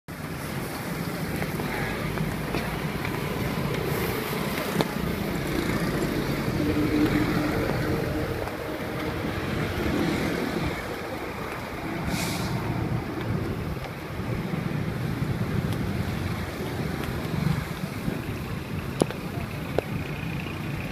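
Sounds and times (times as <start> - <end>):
street traffic rumble: 0.1 - 20.9
wind on microphone: 0.4 - 20.9
short hiss: 12.1 - 12.6.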